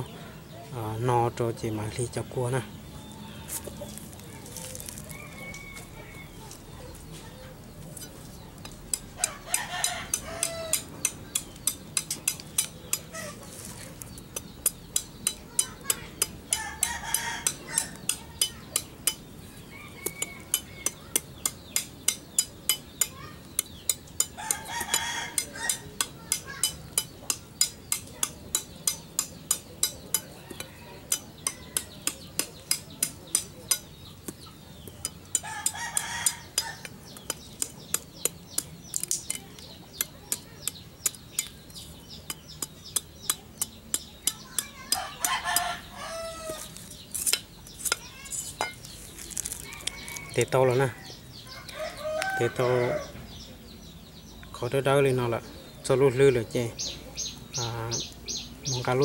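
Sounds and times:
rooster crowing: 5.0 - 6.5, 19.7 - 20.6, 45.0 - 46.6, 49.6 - 53.2.

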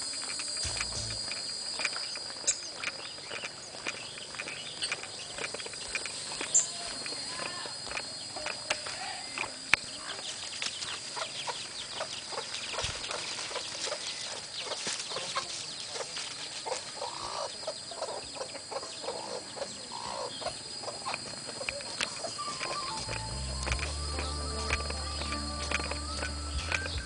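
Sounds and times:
steady high tone: 0.5 - 1.8, 22.4 - 27.0
walking through dry leaves: 10.0 - 17.3, 22.2 - 27.0
chicken clucking: 11.1 - 27.0.

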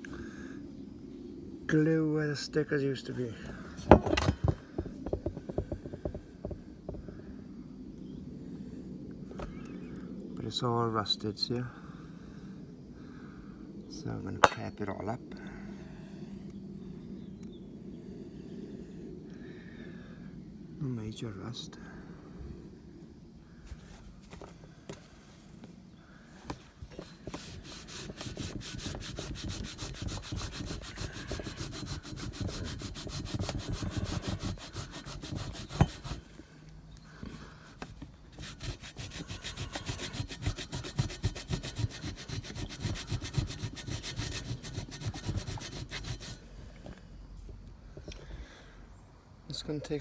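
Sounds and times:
cloth rag rubbing metal tube: 27.2 - 36.3, 38.3 - 46.4.

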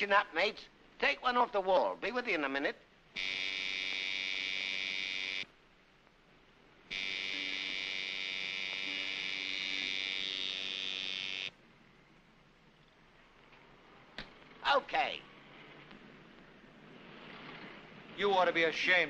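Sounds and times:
electric tattoo machine buzzing: 6.9 - 11.5.

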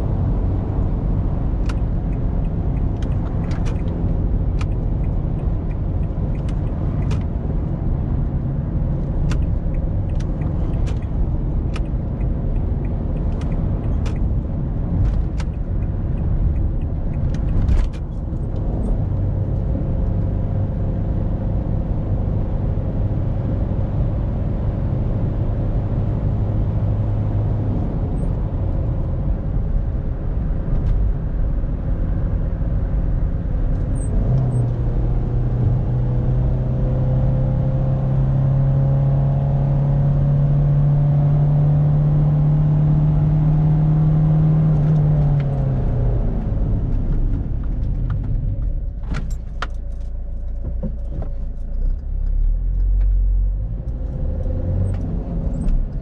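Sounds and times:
car engine drone: 0.0 - 56.0
road and wind noise: 0.0 - 56.0
sharp clicks and knocks: 1.6 - 7.5, 9.1 - 18.7.

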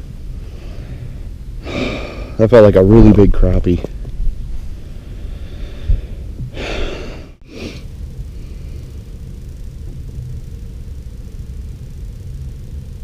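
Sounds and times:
steady low rumble: 0.0 - 13.0
man sighing: 6.5 - 7.3.

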